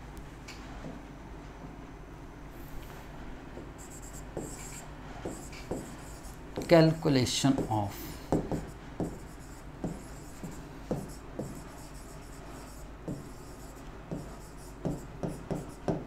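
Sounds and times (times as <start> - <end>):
marker scratching on whiteboard: 3.6 - 16.0.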